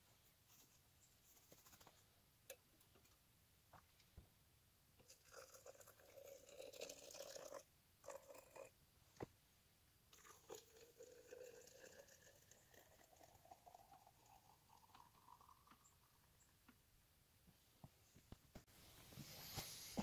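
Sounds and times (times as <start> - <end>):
coffee pouring into tumbler: 5.0 - 8.8, 10.1 - 16.5.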